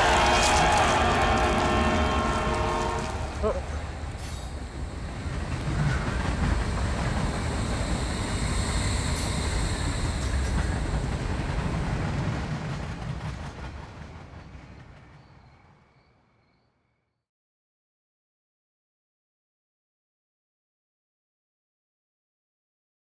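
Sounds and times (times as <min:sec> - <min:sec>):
hiss: 0:04.0 - 0:12.2.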